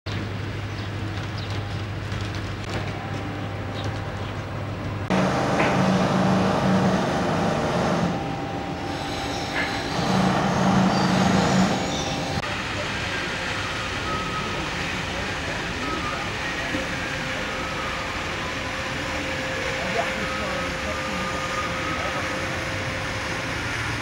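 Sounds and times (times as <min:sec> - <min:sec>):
low engine-like hum: 0:00.1 - 0:24.0
pulsing low drone: 0:02.9 - 0:12.8.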